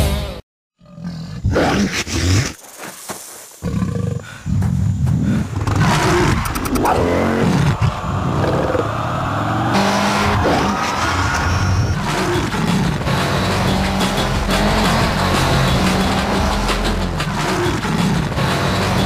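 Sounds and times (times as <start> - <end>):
motorcycle engine revving: 5.6 - 19.0.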